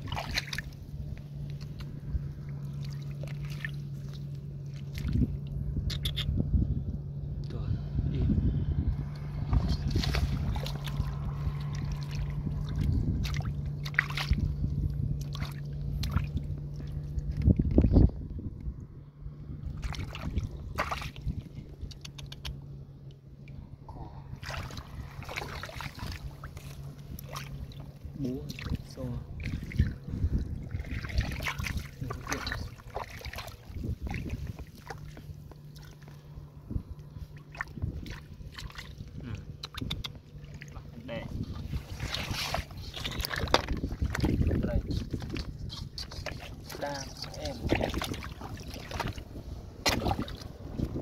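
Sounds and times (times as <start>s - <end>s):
hands splashing in muddy water: 0.0s - 0.8s, 1.4s - 5.4s, 9.2s - 17.8s, 19.8s - 22.2s, 24.2s - 36.3s, 37.1s - 51.0s
steady low hum: 0.0s - 51.0s
water trickling: 24.4s - 39.0s.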